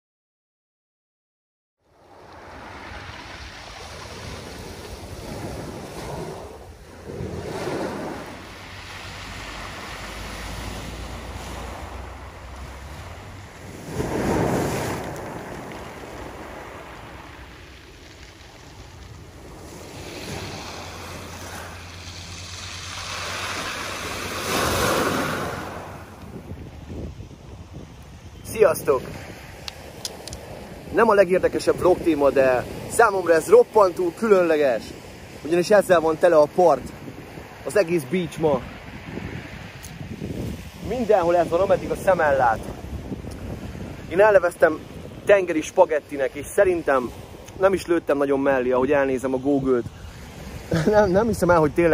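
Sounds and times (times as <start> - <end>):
wind rumbling on microphone: 1.9 - 51.9
waves washing onto pebble beach: 2.0 - 27.3, 27.9 - 51.9.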